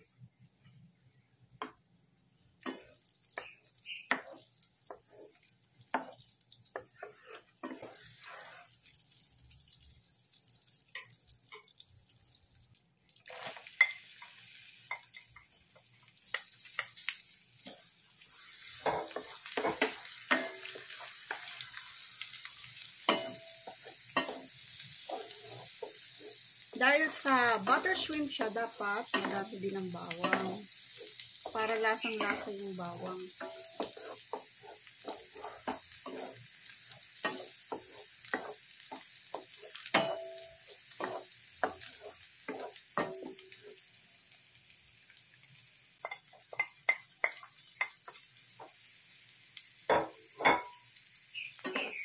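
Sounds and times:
butter sizzling in a pan: 0.0 - 52.0
garlic sizzling in butter: 2.6 - 52.0
wooden spatula scraping a pan: 4.1 - 9.0, 23.6 - 29.6, 30.2 - 39.9, 40.9 - 43.8.

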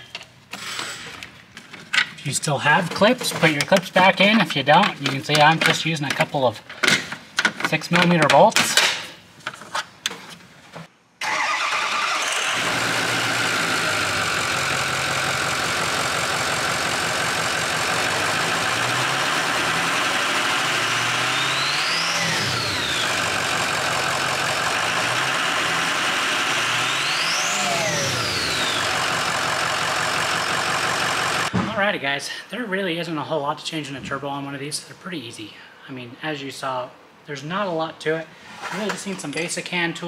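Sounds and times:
diesel engine running and revving: 12.3 - 31.5.

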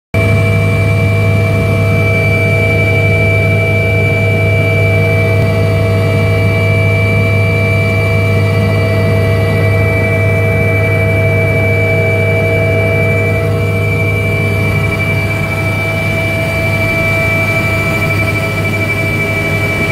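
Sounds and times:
helicopter rotor and turbine drone: 0.2 - 19.9
high whine: 0.2 - 19.9.

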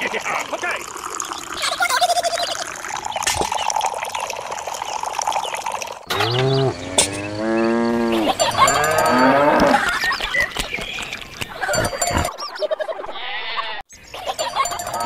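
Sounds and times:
water trickling into a pond: 0.0 - 10.1
cow mooing: 6.1 - 9.8.

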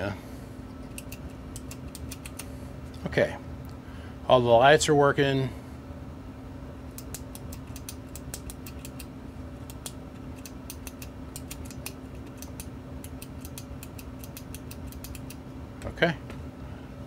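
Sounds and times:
switches clicking: 7.0 - 15.4.

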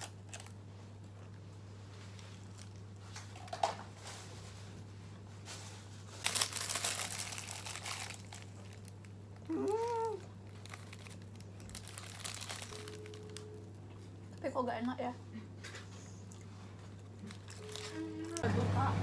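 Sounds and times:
plastic wrapper crinkling: 0.0 - 0.6, 2.0 - 4.3, 5.5 - 14.9, 16.4 - 18.4.

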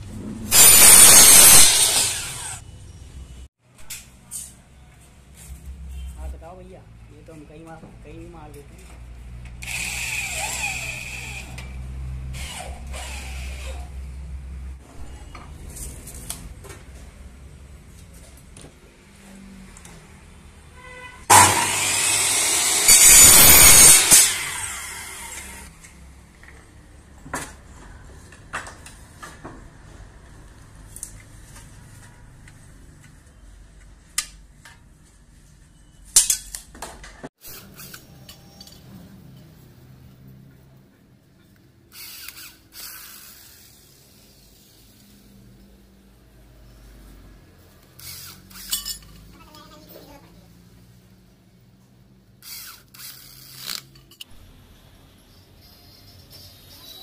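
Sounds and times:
electric drill boring into metal: 0.5 - 2.6, 9.6 - 11.7, 12.3 - 13.9, 21.3 - 25.7, 42.0 - 43.6, 48.0 - 49.0, 52.4 - 54.0.

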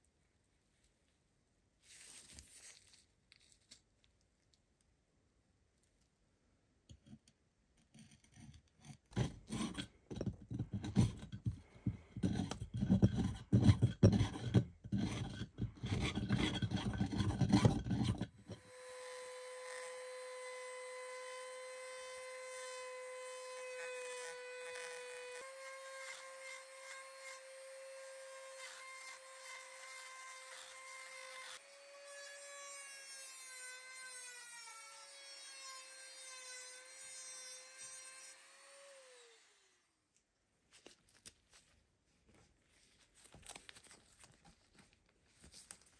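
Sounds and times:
blade scraping wood and rust: 7.8 - 11.5, 12.2 - 18.6
rotary tool grinding whine: 14.1 - 32.4.

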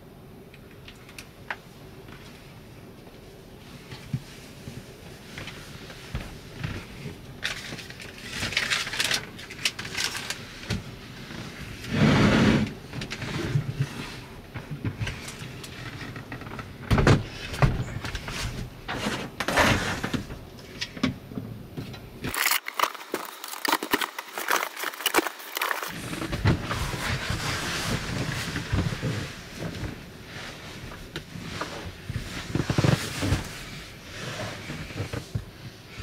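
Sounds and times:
rustling: 22.2 - 36.0.

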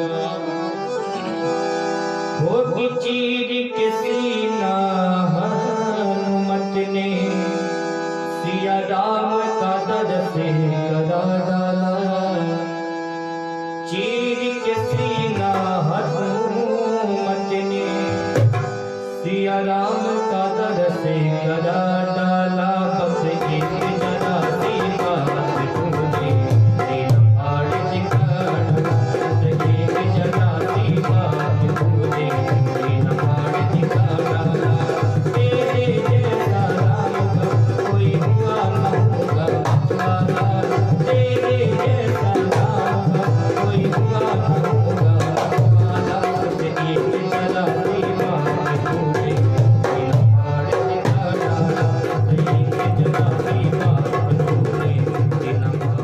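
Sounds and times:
keyboard melody: 0.0 - 56.0
hand drum fast rhythm: 28.0 - 56.0.

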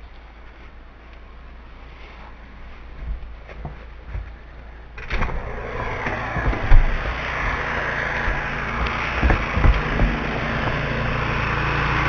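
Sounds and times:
footsteps and light knocks: 0.0 - 11.8
rushing outdoor noise: 1.8 - 12.0
door opening: 5.0 - 11.4
low thumps on microphone: 5.8 - 11.2.

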